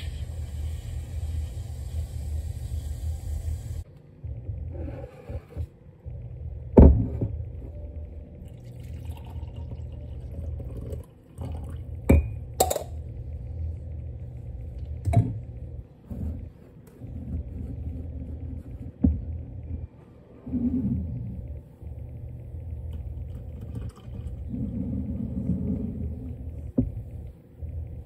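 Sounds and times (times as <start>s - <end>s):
steady low rumble: 0.2s - 8.6s, 11.7s - 28.0s
coffee pouring into mug: 8.4s - 13.0s, 22.9s - 25.1s.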